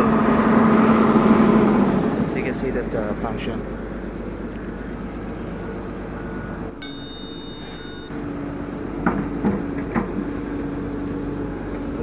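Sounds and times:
excavator diesel engine running: 0.0 - 3.3
bell-like ding chime: 6.8 - 8.1.

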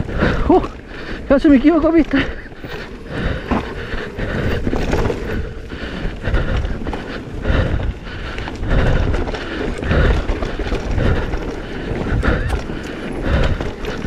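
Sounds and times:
bike knocking and rattling: 0.0 - 14.0
tyres rumbling over dirt: 0.0 - 14.0
wind buffeting microphone: 0.0 - 14.0.

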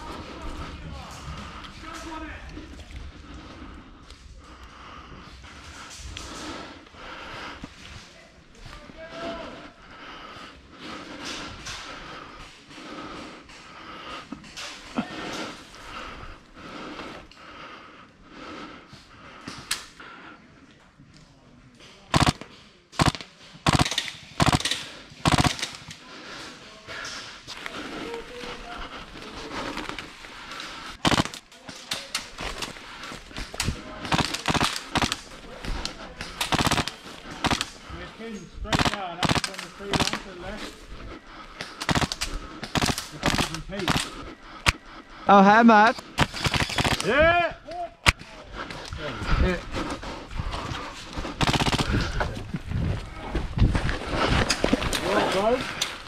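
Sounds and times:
airsoft guns firing: 22.1 - 25.9, 31.0 - 31.4, 34.0 - 35.4, 36.3 - 37.8, 38.7 - 40.3, 41.8 - 44.8, 46.2 - 47.3, 51.4 - 52.2
rustling of undergrowth: 26.4 - 45.4, 48.2 - 56.0.

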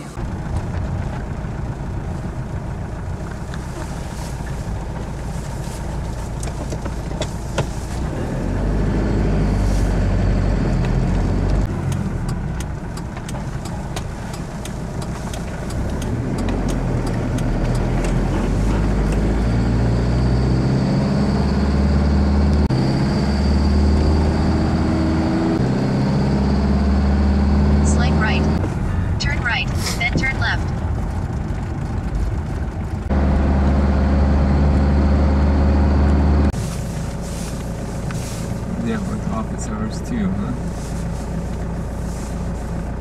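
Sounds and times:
road noise: 0.0 - 43.0
van engine running: 0.0 - 43.0
clicks and rattles in cab: 6.2 - 8.0, 11.7 - 19.3.

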